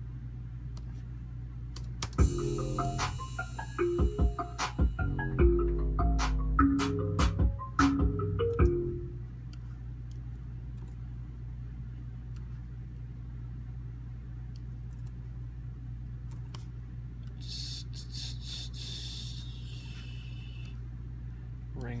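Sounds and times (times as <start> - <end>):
low hum: 8.3 - 21.8.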